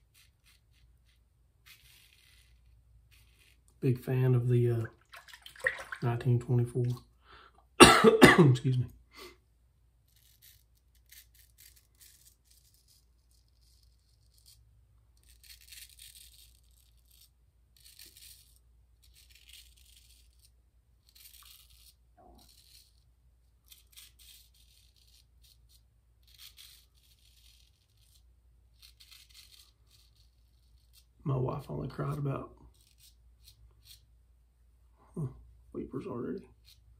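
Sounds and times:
razor scraping stubble: 0:00.0 - 0:04.7, 0:10.0 - 0:34.1.

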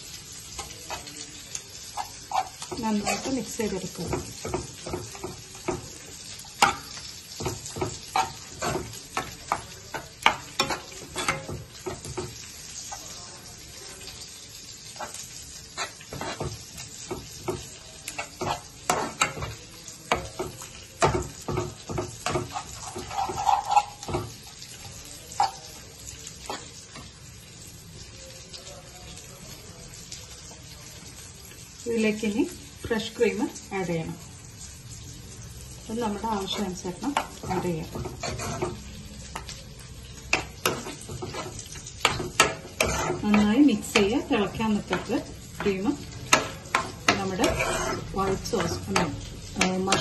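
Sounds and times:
low sizzle: 0:00.0 - 0:50.0
spatula scraping pan: 0:01.8 - 0:13.1, 0:14.9 - 0:25.6, 0:26.4 - 0:27.1, 0:36.1 - 0:39.5, 0:40.3 - 0:50.0.

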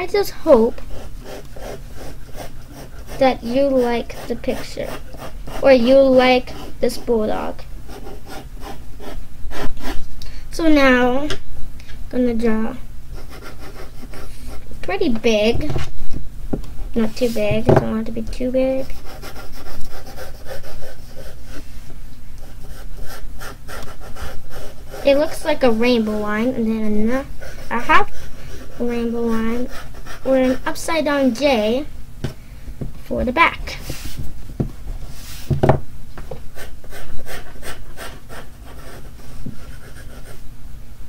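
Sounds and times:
pencil scratching on paper: 0:00.5 - 0:07.2, 0:07.9 - 0:10.0, 0:13.2 - 0:14.6, 0:18.8 - 0:21.7, 0:22.4 - 0:30.8, 0:36.6 - 0:40.4
hand brushing across paper: 0:17.0 - 0:17.5, 0:33.7 - 0:34.4, 0:35.0 - 0:35.5.

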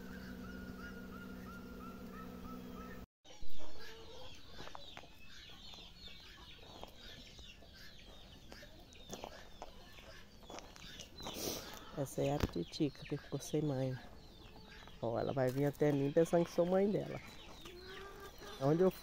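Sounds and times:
bees buzzing: 0:00.0 - 0:03.1
chickens clucking: 0:00.0 - 0:19.0.

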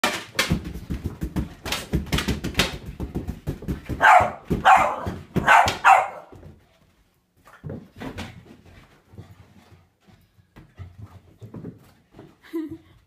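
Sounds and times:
quick taps and thumps: 0:00.2 - 0:05.9
dog barking: 0:04.0 - 0:06.4.

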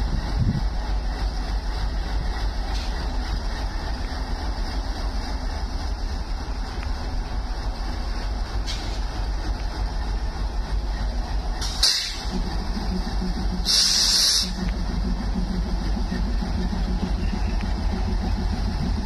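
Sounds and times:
diesel locomotive engine idling: 0:00.0 - 0:19.0
air hiss bursts: 0:11.6 - 0:12.3, 0:13.6 - 0:14.6.

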